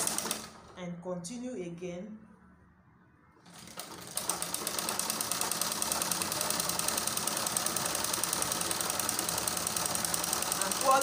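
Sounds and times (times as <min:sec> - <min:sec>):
sewing machine clattering: 0:00.0 - 0:00.7, 0:03.5 - 0:11.0.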